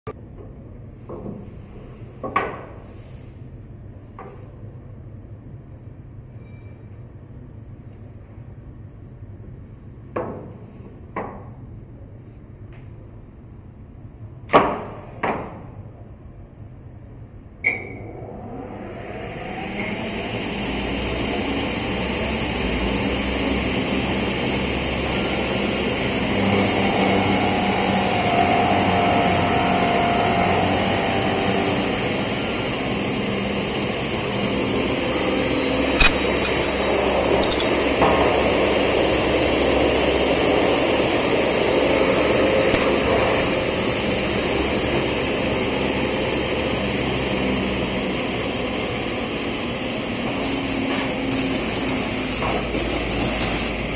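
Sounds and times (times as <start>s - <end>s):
saw and drilling machine running: 18.4s - 53.9s.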